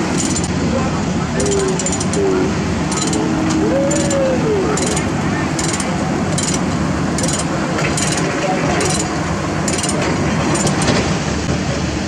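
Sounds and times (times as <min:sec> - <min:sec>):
diesel engine running: 0:00.0 - 0:12.0
chain clinking: 0:00.1 - 0:00.5, 0:01.4 - 0:02.2, 0:02.9 - 0:04.2, 0:04.8 - 0:11.0.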